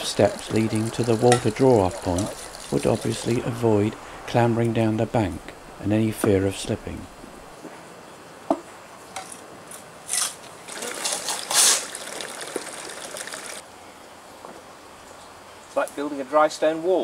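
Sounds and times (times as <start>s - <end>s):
steady hiss: 0.0s - 9.2s.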